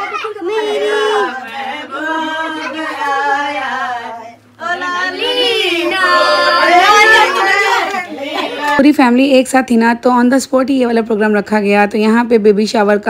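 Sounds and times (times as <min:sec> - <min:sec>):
people singing together: 0:00.0 - 0:08.8.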